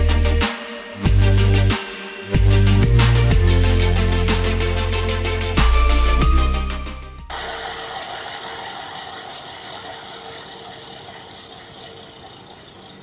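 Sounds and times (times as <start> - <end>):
bicycle freehub ratcheting buzz: 7.3 - 13.0.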